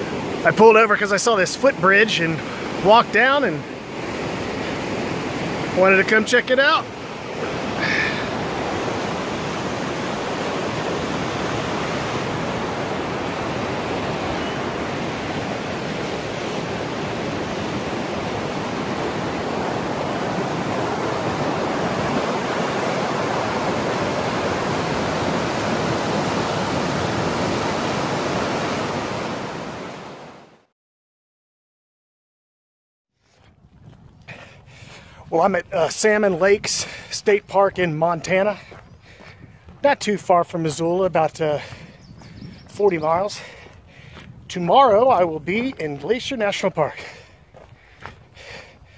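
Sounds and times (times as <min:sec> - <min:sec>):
river rapids rushing: 0:00.0 - 0:30.4.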